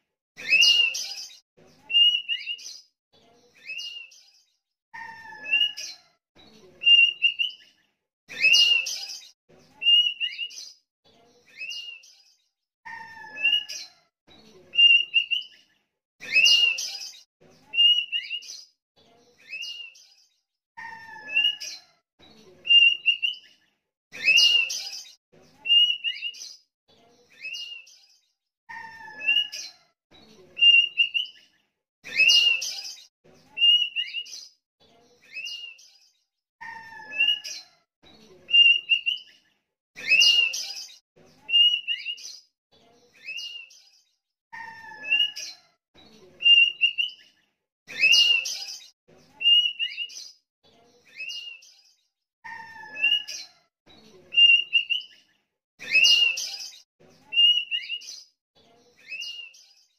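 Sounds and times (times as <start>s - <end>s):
bird singing whistled phrases: 1.9s - 2.7s, 5.0s - 5.9s, 6.8s - 7.6s, 9.8s - 10.6s, 12.9s - 13.8s, 14.8s - 15.5s, 17.7s - 18.5s, 21.1s - 21.8s, 22.7s - 23.4s, 25.6s - 26.4s, 28.8s - 29.6s, 30.6s - 31.4s, 33.6s - 34.3s, 37.0s - 37.6s, 38.5s - 39.3s, 40.0s - 42.2s, 44.6s - 45.5s, 46.4s - 47.2s, 49.4s - 50.2s, 52.5s - 53.5s, 54.4s - 55.1s, 57.3s - 58.1s.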